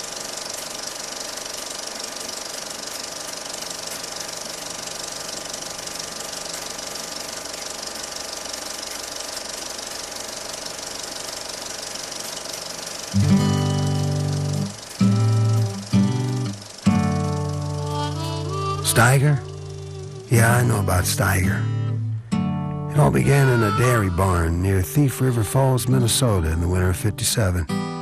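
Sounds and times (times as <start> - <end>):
film projector clatter: 0.0 - 21.4.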